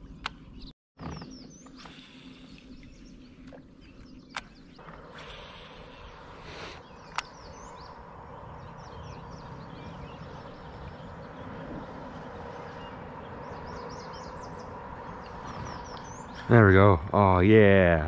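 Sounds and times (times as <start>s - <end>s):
small birds chirping: 0.0s - 18.0s
sharp click: 4.3s - 4.6s, 7.1s - 7.4s.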